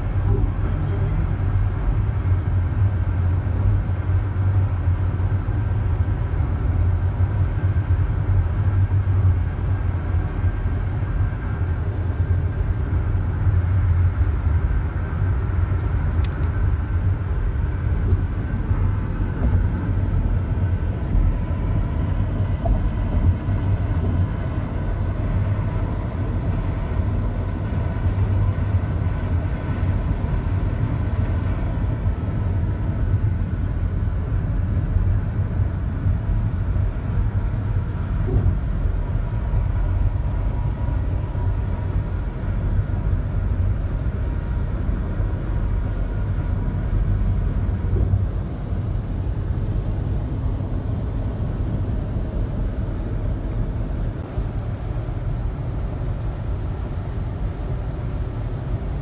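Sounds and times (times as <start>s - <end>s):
car engine and road noise: 0.0s - 59.0s.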